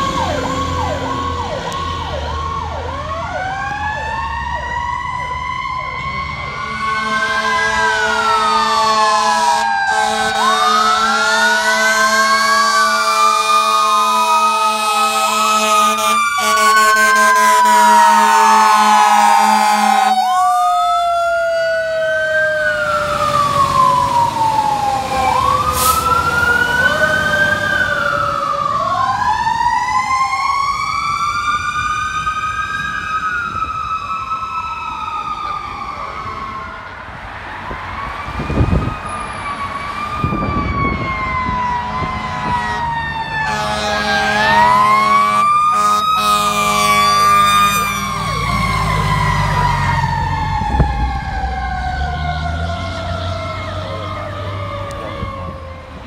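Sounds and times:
fire engine sirens wailing: 0.0s - 56.0s
horn blast: 6.6s - 12.2s, 14.8s - 20.1s, 41.7s - 48.1s.

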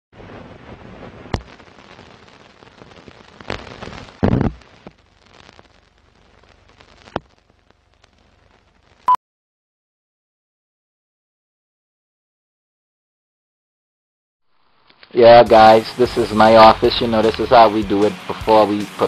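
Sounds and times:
film surface hiss: 0.2s - 9.1s, 14.6s - 19.0s
film crackle pops and clicks: 0.7s - 9.1s, 14.8s - 15.2s.

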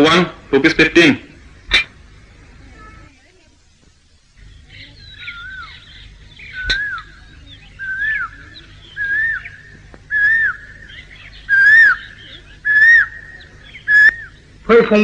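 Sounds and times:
steady low hum: 0.0s - 15.0s
whistled call: 4.7s - 14.4s.

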